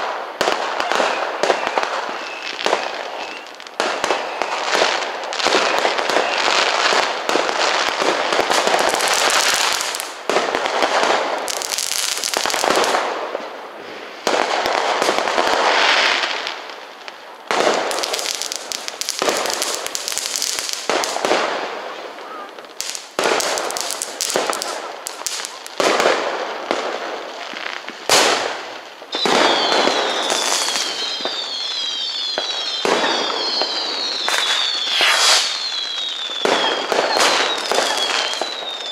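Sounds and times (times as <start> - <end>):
fireworks banging and crackling: 0.0 - 38.9
high falling whistles: 1.0 - 4.7, 29.1 - 38.9.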